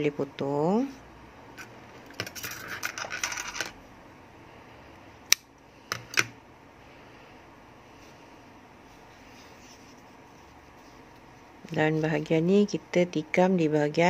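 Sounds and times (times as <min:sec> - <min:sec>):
yarn rustling: 0:07.9 - 0:12.5.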